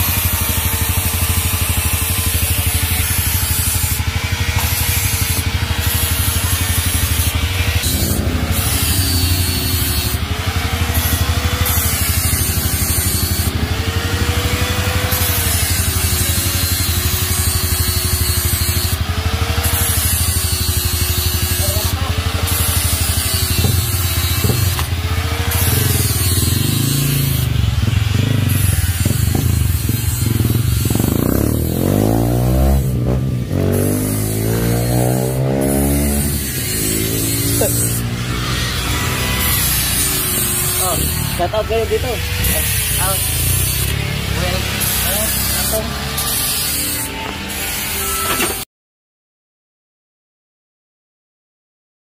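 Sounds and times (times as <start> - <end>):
motorcycle engine idling: 0.0 - 31.8.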